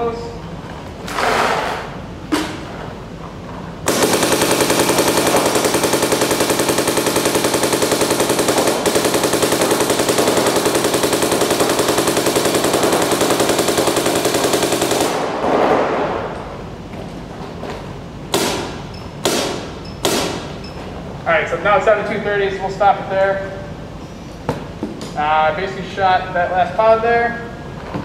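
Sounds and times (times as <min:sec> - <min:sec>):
paintball marker rapid firing: 0:03.9 - 0:15.7, 0:18.3 - 0:20.5.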